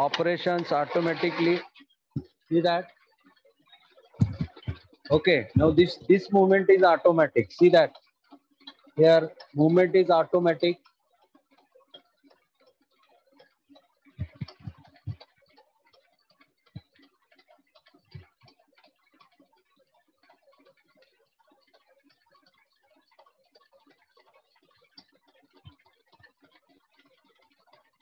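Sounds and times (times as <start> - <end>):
lathe cutting crackling clicks: 0.0 - 1.6.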